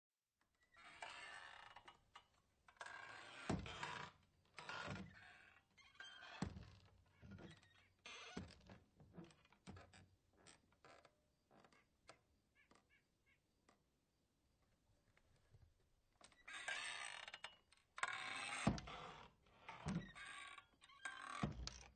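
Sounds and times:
door squeaks: 0:02.8 - 0:13.0, 0:16.3 - 0:21.9
swinging doors swishing and knocking: 0:06.0 - 0:10.0, 0:18.4 - 0:21.9.

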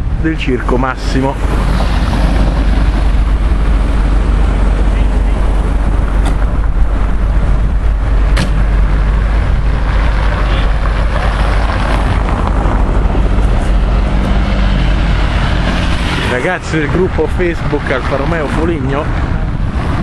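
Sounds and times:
car engine: 0:00.0 - 0:20.0
road noise: 0:00.0 - 0:20.0.

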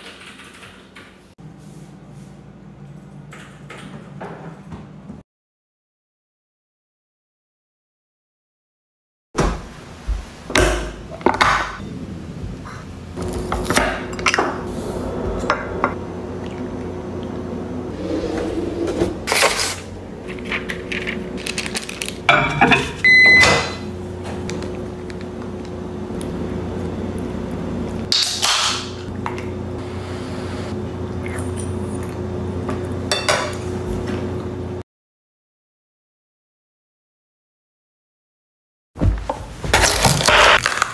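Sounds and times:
steady low hum: 0:11.8 - 0:28.1, 0:28.9 - 0:34.8.

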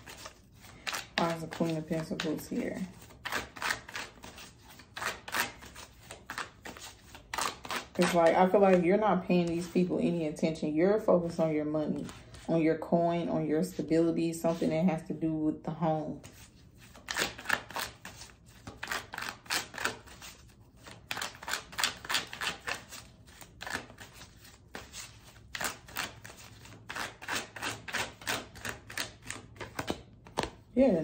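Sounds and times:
cards being shuffled: 0:00.0 - 0:09.8, 0:16.2 - 0:30.9.

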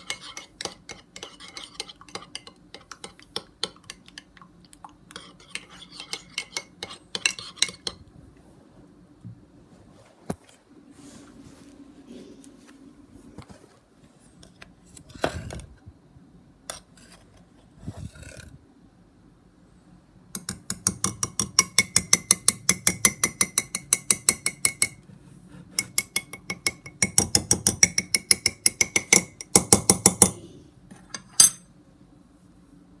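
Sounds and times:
spoon clinking in ceramic mug: 0:31.1 - 0:31.7.

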